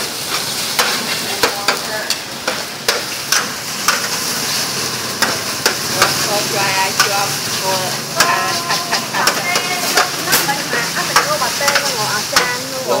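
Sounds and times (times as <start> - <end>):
noodles sizzling on griddle: 0.0 - 13.0
metal spatula scraping and clacking: 0.3 - 4.6, 8.2 - 13.0.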